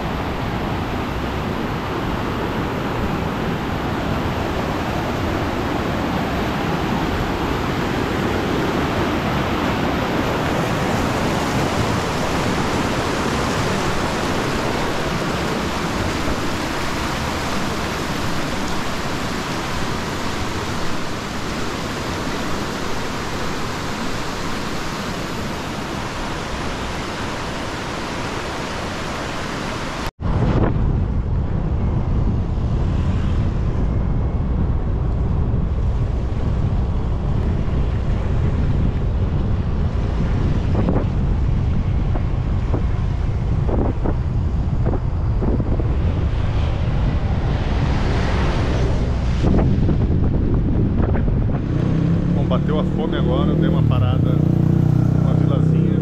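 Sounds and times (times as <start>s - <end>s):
wind buffeting on microphone: 0.0s - 56.0s.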